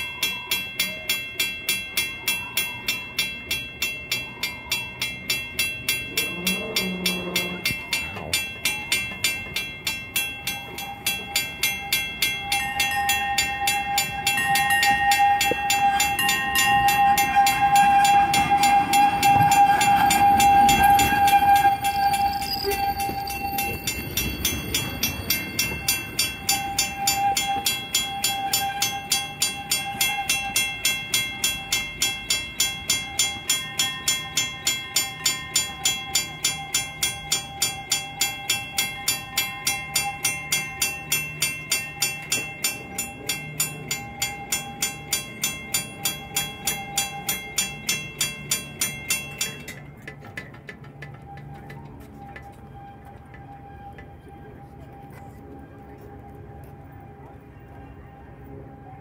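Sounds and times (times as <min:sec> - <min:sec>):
railroad crossing bell ringing: 0:00.0 - 0:59.0
trolley wheels squealing on curve: 0:10.4 - 0:30.9.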